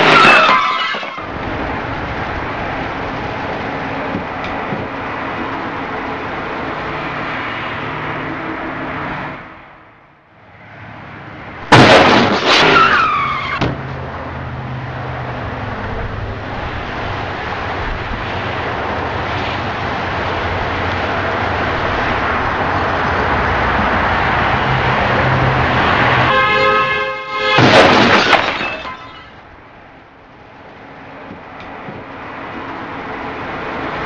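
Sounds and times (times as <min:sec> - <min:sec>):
falling screech: 0:00.0 - 0:01.3, 0:11.8 - 0:13.7
car crash impact: 0:00.0 - 0:01.4, 0:11.6 - 0:13.9, 0:27.4 - 0:29.4
road traffic noise: 0:00.0 - 0:34.0.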